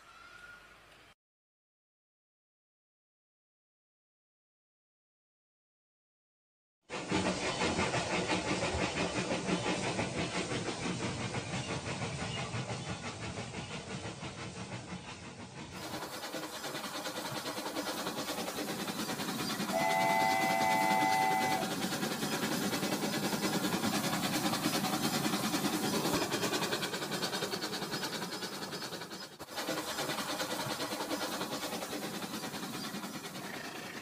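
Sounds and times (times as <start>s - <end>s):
wheels rattling on track: 6.9s - 34.0s
toy train motor whirring: 15.8s - 33.5s
electronic horn: 19.8s - 21.6s.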